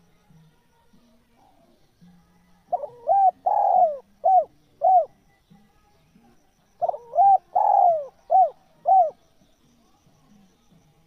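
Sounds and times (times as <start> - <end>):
dove cooing: 2.6 - 5.2, 6.8 - 9.2.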